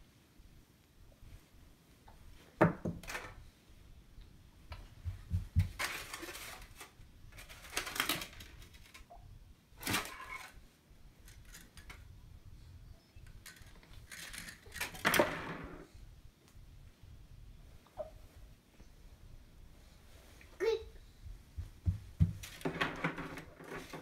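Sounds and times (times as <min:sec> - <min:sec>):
rustling: 0:04.8 - 0:09.1.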